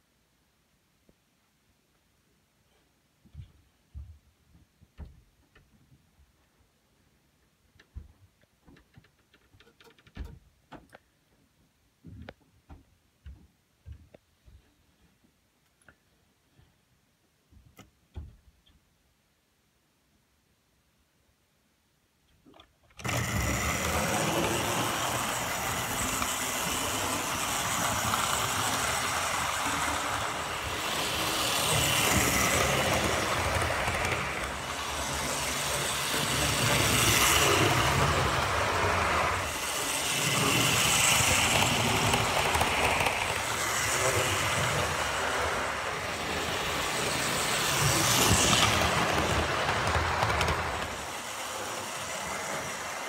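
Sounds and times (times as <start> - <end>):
model train whirring on track: 22.9 - 53.0.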